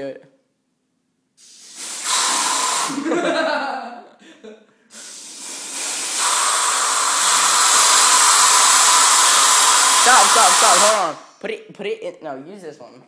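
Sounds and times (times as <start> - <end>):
compressed air hissing: 1.4 - 3.2, 4.9 - 11.4.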